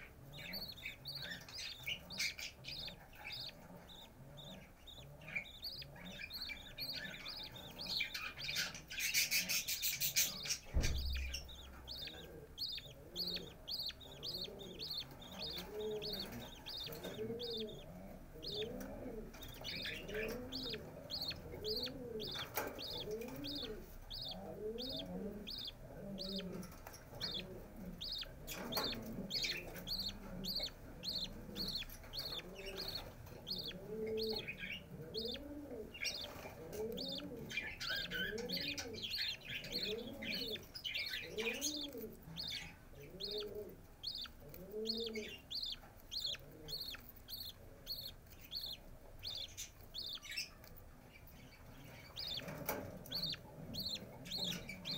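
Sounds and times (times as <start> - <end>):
chicks begging peeps: 0.0 - 54.9
low thump: 10.6 - 12.1.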